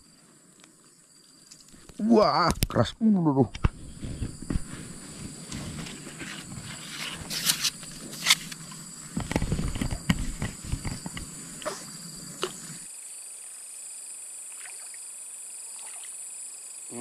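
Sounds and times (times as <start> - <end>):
insects droning: 0.0 - 17.0
fishing gear rustling and knocking: 3.5 - 11.8.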